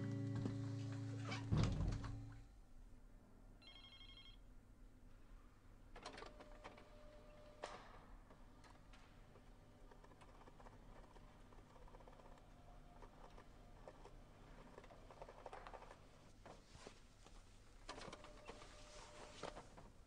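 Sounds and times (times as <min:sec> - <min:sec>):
guitar music: 0:00.0 - 0:02.1
electronic telephone ring: 0:03.6 - 0:04.4.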